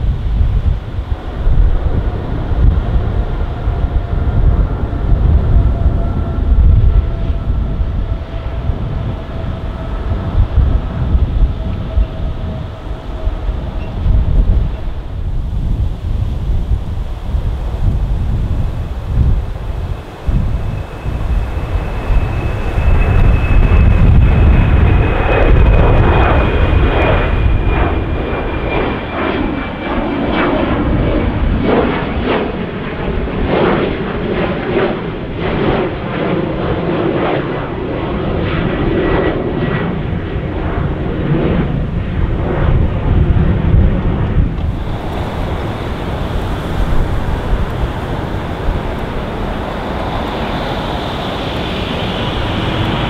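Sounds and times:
jet engines at take-off power: 0.0s - 53.0s
high engine whine falling in pitch: 16.8s - 31.3s, 43.8s - 53.0s
uneven pulsing crackle: 17.6s - 30.5s, 44.2s - 53.0s.

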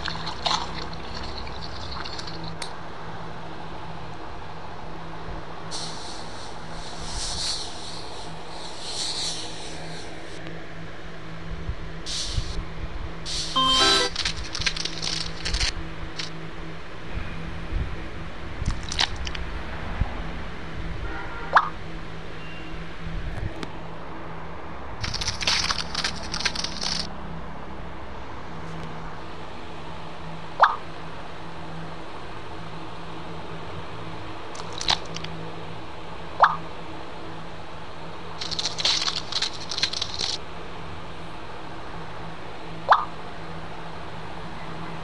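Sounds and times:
spray hissing: 5.8s - 10.2s
crackling crunching sound effect: 13.6s - 16.3s, 18.6s - 19.4s, 25.0s - 27.1s, 34.6s - 35.3s, 38.4s - 40.4s.

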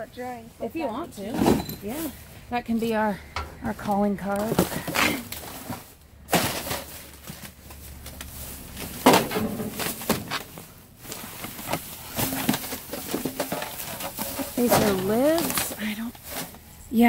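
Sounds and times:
plastic bags and cardboard rustling: 0.0s - 17.0s.

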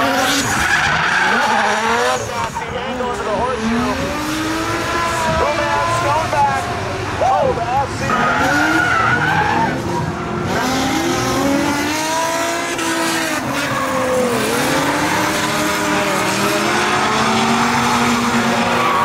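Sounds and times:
tyres screeching: 0.0s - 2.6s, 8.0s - 10.1s
car engines revving: 0.0s - 19.0s.

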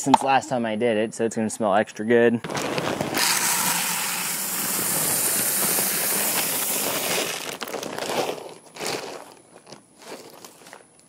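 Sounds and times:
corn kernels pouring into bucket: 2.4s - 9.4s
bag crinkling: 2.4s - 11.0s.

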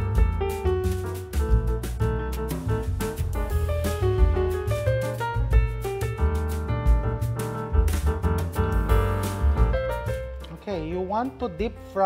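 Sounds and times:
jazzy piano music: 0.0s - 12.0s.

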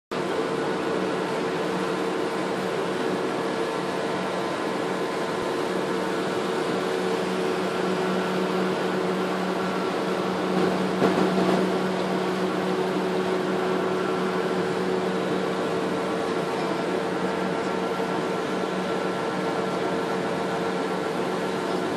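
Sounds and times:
boat engine drone: 0.1s - 21.9s.

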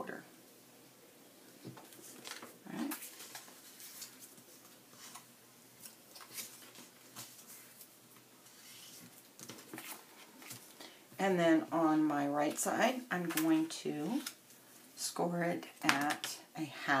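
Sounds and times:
paper rustling: 1.7s - 10.8s.

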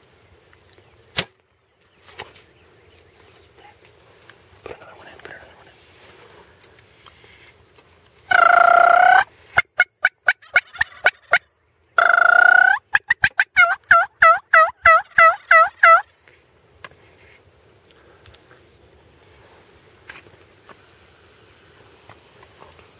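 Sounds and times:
turkey call clucks and yelps: 8.3s - 16.1s.

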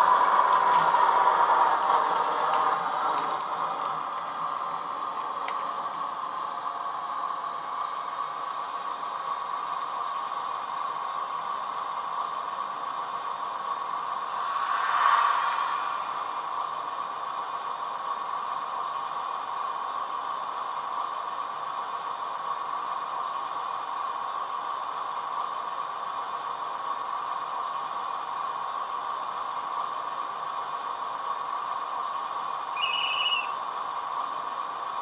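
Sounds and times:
steady hiss: 10.1s - 18.8s
even hum: 13.9s - 17.9s.

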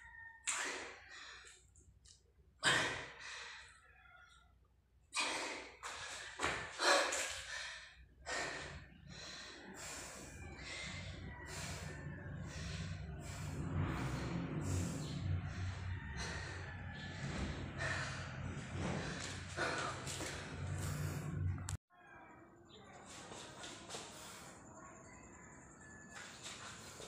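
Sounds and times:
man breathing hard: 5.2s - 21.7s.

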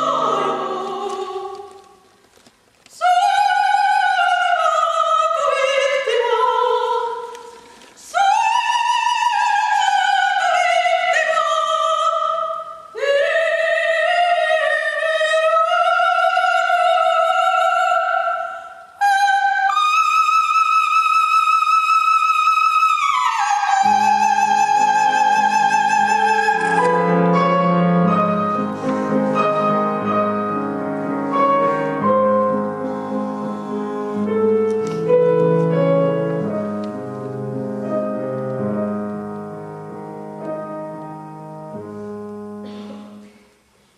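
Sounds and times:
grand piano playing: 0.0s - 1.6s, 23.7s - 43.4s
soprano singing: 0.0s - 2.1s, 2.9s - 43.2s.

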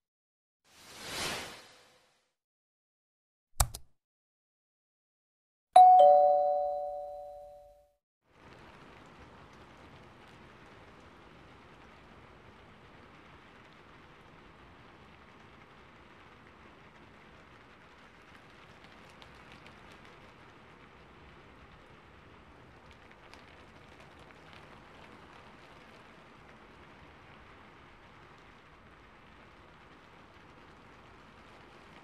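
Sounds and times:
two-note notification chime: 5.8s - 7.8s.

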